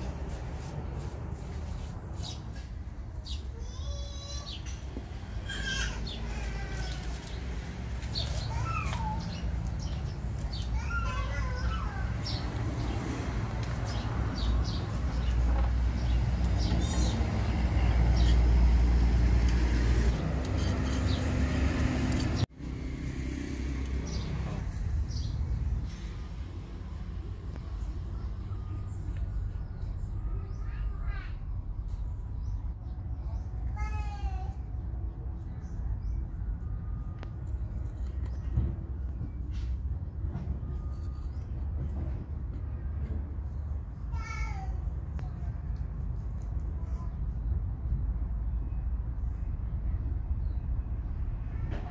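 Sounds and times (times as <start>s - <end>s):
vehicle engine rumbling: 0.0s - 51.9s.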